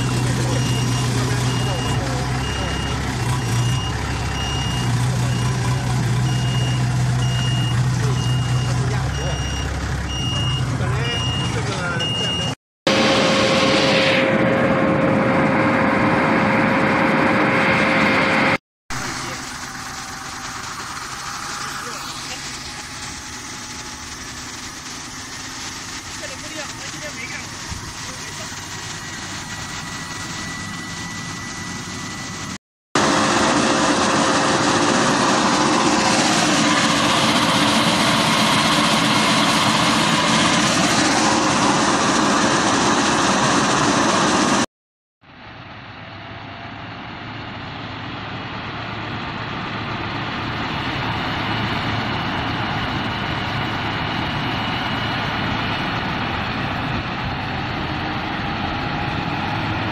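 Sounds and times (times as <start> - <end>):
heavy diesel engine: 0.0 - 59.9
water jet spraying: 19.0 - 28.9.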